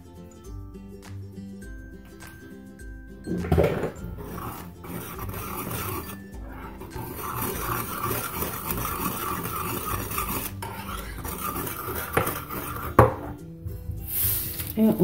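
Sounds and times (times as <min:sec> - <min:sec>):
metal whisk scraping a saucepan: 0:03.3 - 0:13.4.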